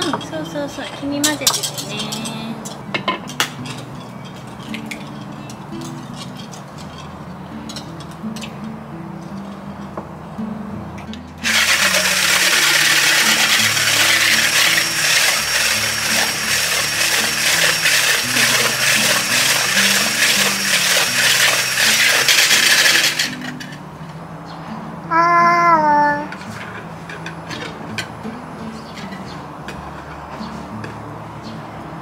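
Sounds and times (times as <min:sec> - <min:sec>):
quiet background music: 0:00.0 - 0:32.0
electric hand blender whirring: 0:11.4 - 0:23.6.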